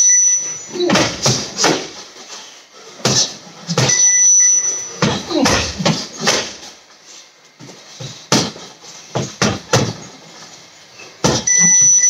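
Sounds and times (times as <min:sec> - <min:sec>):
electronic beep: 0:00.0 - 0:00.8, 0:11.5 - 0:12.0
punches and kicks on heavy bag: 0:00.8 - 0:02.0, 0:05.0 - 0:06.6, 0:08.3 - 0:10.0, 0:11.2 - 0:11.5.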